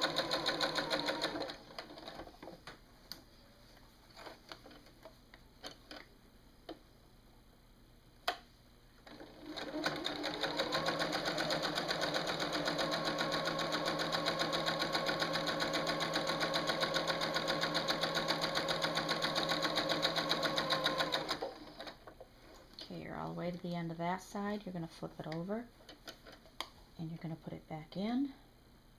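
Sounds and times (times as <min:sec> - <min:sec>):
sewing machine stitching: 0:00.0 - 0:02.5, 0:09.0 - 0:22.0.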